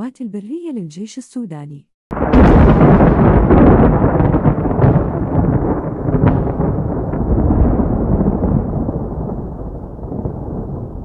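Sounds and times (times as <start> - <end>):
sharp cracks: 2.1 - 9.0
deep rumbling boom: 2.1 - 11.0.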